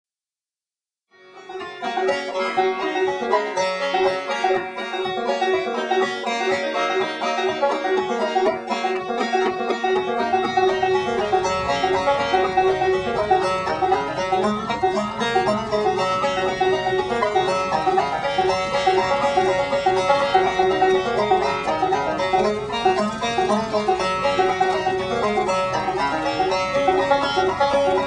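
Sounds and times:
bluegrass banjo music: 0:01.2 - 0:28.0
low steady rumble: 0:10.4 - 0:28.0.

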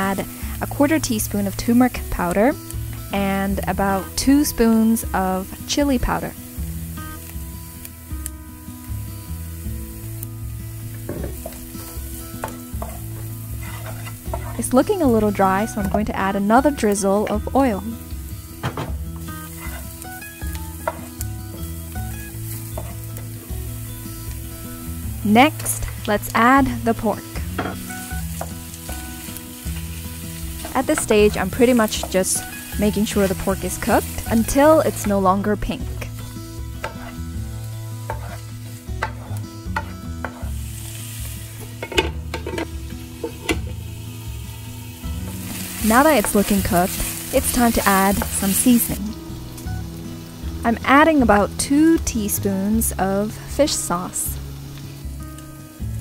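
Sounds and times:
background music: 0:00.0 - 0:56.0
shallots sizzling in oil: 0:00.0 - 0:56.0
wooden spatula scraping pan: 0:12.8 - 0:14.8, 0:19.4 - 0:20.0, 0:36.7 - 0:40.6.

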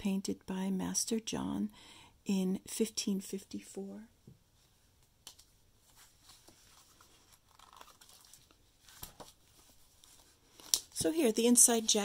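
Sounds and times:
book pages rustling and turning: 0:04.6 - 0:12.0.

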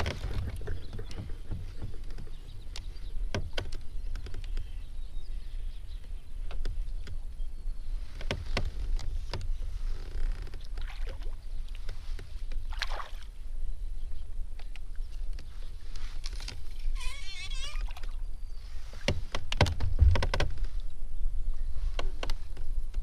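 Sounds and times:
kayak gear clicks and knocks: 0:00.0 - 0:04.8, 0:06.0 - 0:07.2, 0:08.2 - 0:12.6, 0:14.5 - 0:17.6, 0:18.9 - 0:20.9, 0:21.9 - 0:23.0.

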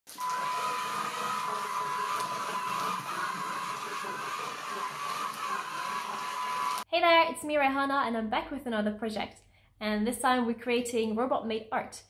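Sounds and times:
small gear motors whirring: 0:00.1 - 0:06.9.

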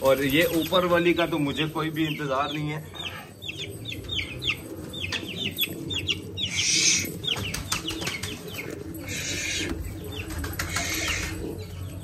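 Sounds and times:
birds chirping: 0:00.0 - 0:12.0
wings flapping: 0:07.2 - 0:09.6, 0:10.2 - 0:11.4.

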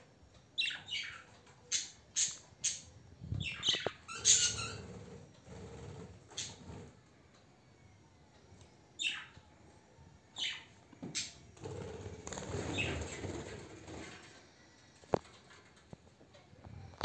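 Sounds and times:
parakeet calls: 0:00.6 - 0:05.1, 0:09.0 - 0:09.4, 0:10.4 - 0:11.4
wings flapping: 0:11.6 - 0:14.4.

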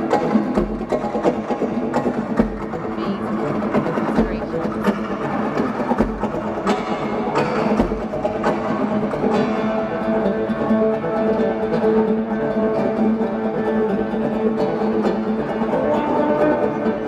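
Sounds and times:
acoustic guitars playing: 0:00.0 - 0:17.0.

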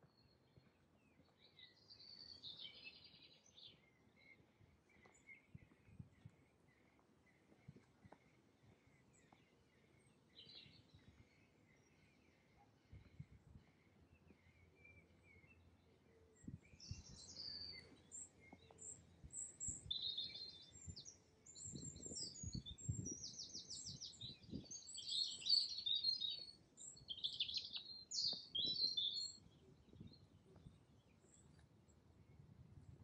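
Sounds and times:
songbird twittering and trilling: 0:00.0 - 0:31.7.

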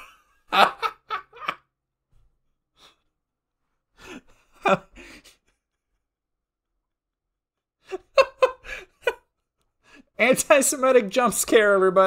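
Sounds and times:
person laughing: 0:00.0 - 0:01.7, 0:04.0 - 0:05.6, 0:07.8 - 0:09.3.

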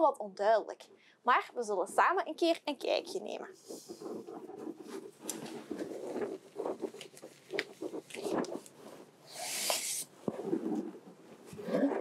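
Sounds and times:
gloves rustling: 0:03.3 - 0:11.6.

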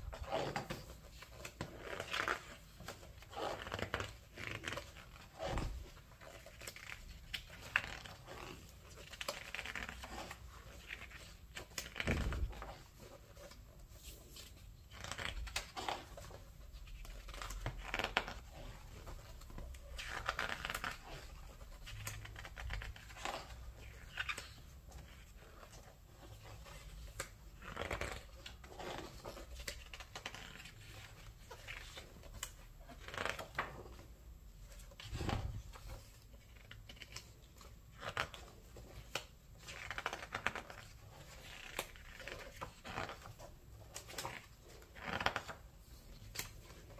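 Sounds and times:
book pages rustling: 0:00.0 - 0:46.9.

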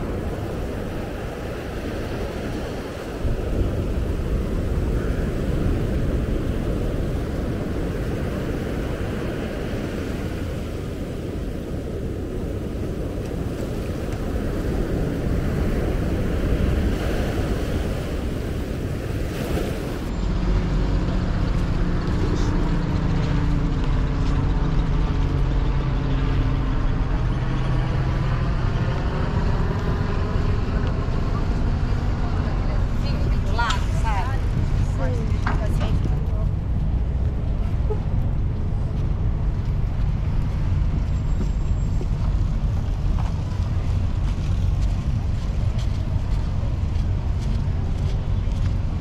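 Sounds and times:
wind rumbling on microphone: 0:00.0 - 0:49.0.

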